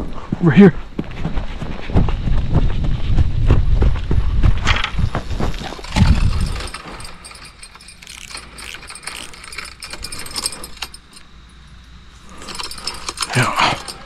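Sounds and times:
handling knocks and rustling: 0:04.5 - 0:14.0
fishing reel clicking and rattling: 0:05.7 - 0:11.3, 0:12.3 - 0:14.0.

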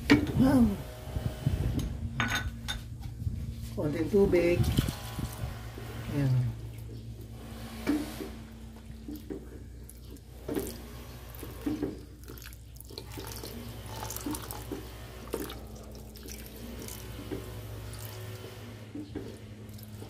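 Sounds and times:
water trickling into pot: 0:09.1 - 0:18.4.

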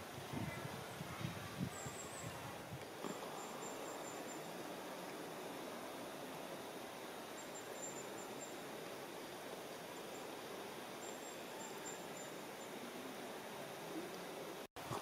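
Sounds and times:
meadow ambience hiss: 0:00.0 - 0:15.0.

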